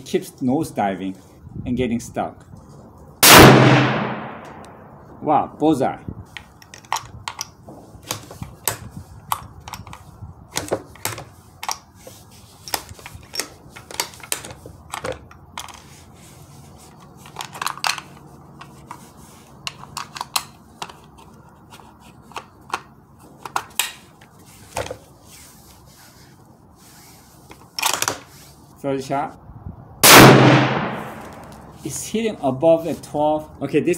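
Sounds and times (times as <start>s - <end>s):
rifle bolt metallic clicks: 3.3s - 4.8s, 6.4s - 10.0s.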